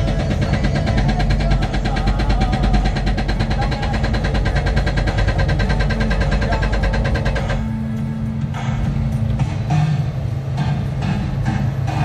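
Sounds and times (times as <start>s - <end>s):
hydraulic breaker hammering rock: 0.0s - 7.8s
diesel engine running: 0.0s - 12.0s.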